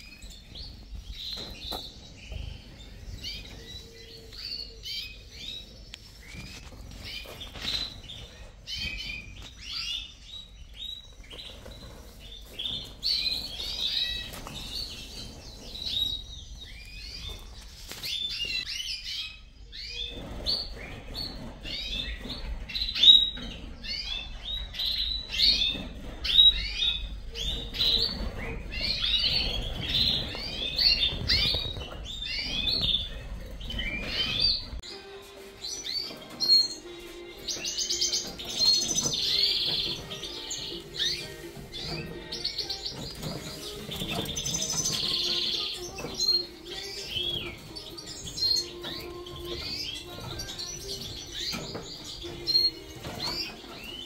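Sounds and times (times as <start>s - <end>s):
finches chirping: 0.0s - 54.0s.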